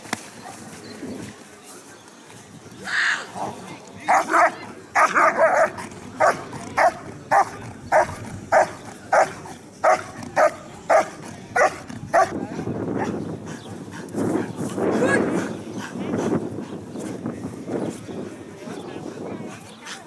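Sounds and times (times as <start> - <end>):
dog barking rhythmically: 4.1 - 12.4.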